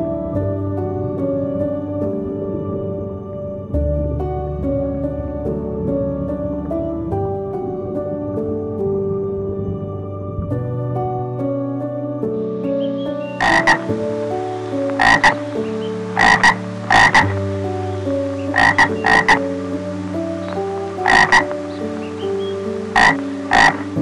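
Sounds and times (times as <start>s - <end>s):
soft ambient background music: 0.0s - 24.0s
frog croaking: 12.8s - 24.0s.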